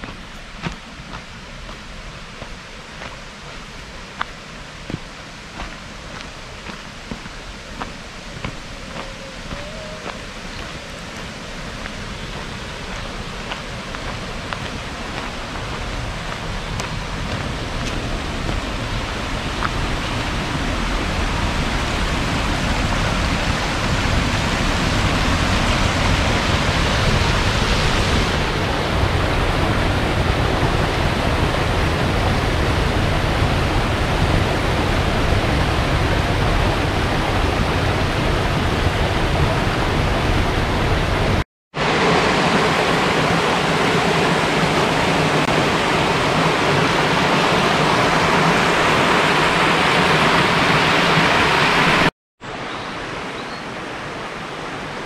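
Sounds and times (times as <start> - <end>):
stream rushing over stones: 0.0 - 55.0.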